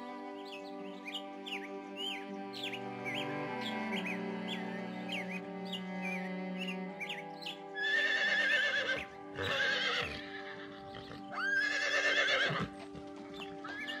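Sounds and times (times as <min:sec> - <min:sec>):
background music with sustained notes: 0:00.0 - 0:14.0
horses whinnying: 0:07.8 - 0:14.0.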